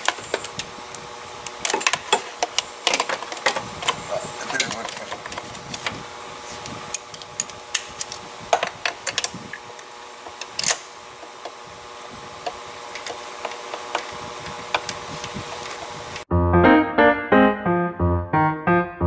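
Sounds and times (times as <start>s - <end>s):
hand tools clicking and tapping: 1.6s - 5.9s.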